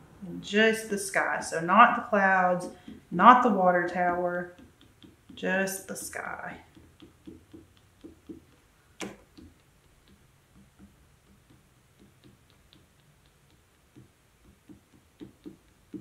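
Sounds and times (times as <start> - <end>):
marker tip tapping on paper: 2.6 - 3.2, 3.9 - 16.0.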